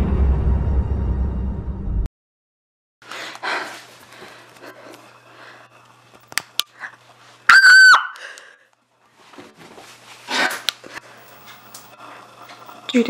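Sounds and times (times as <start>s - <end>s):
faint breathing: 3.0s - 5.9s
loud high-pitched shriek: 7.5s - 8.2s.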